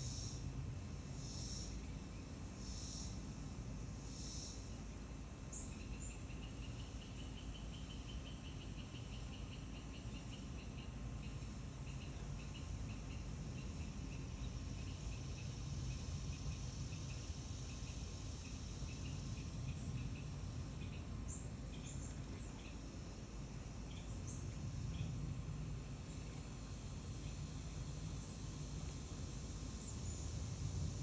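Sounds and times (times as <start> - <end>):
crickets chirping: 0.0 - 31.0
insect hiss: 0.0 - 31.0.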